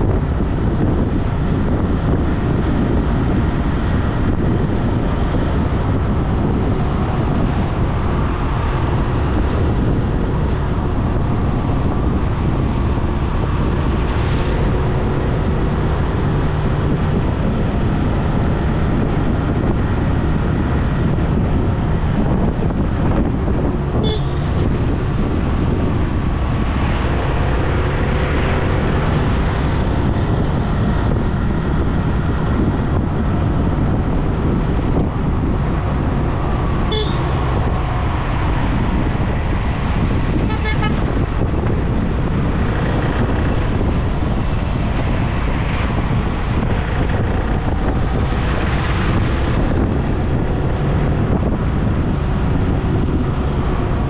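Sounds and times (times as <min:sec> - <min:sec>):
car road and wind rumble: 0:00.0 - 0:54.0
car horns: 0:24.0 - 0:24.6, 0:36.9 - 0:37.4, 0:40.3 - 0:41.1.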